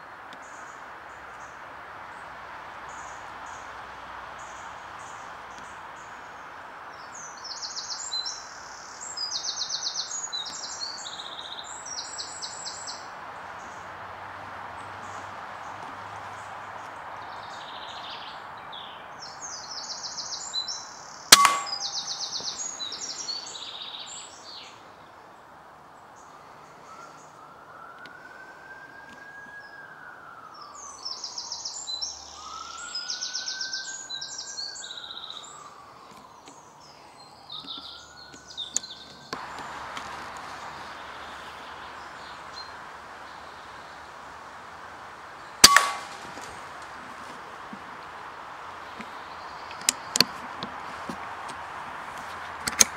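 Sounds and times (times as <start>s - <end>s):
songbirds trilling and chirping: 0.0s - 52.9s
air rifle shot: 21.3s - 22.4s, 45.6s - 46.5s.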